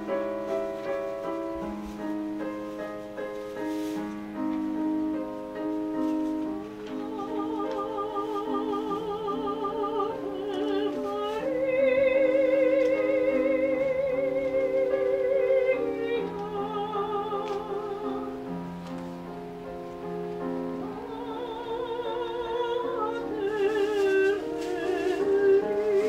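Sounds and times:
classical voice singing: 5.4 - 26.0.

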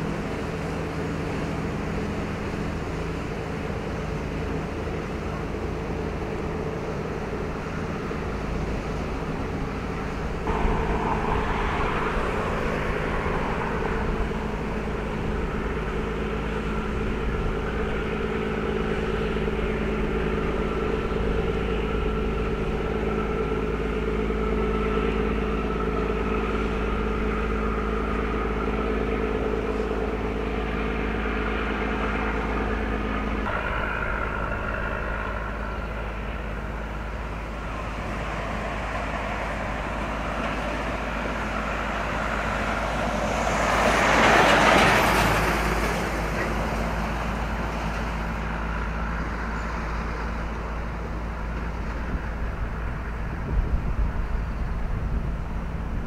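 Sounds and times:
engine hum: 0.0 - 56.0
road traffic rumble: 0.0 - 56.0
vehicle passing by: 8.2 - 56.0.

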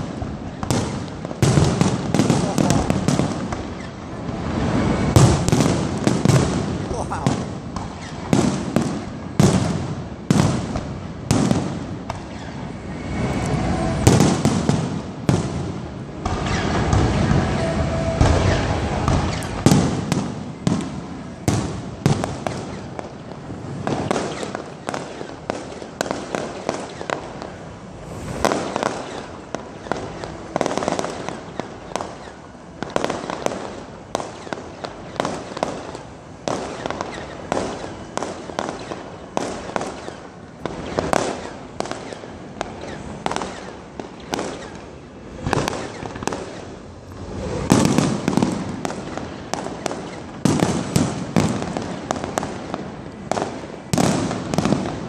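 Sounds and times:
fireworks bursting: 0.0 - 55.0.

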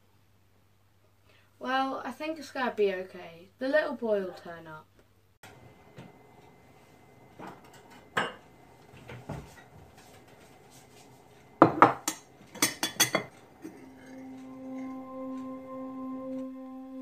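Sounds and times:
low musical drone: 13.6 - 17.0.

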